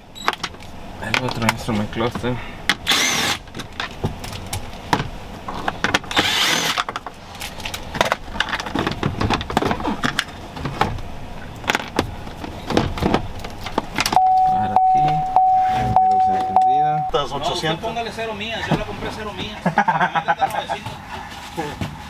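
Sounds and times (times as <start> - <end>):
cordless drill motor whine: 6.1 - 6.8.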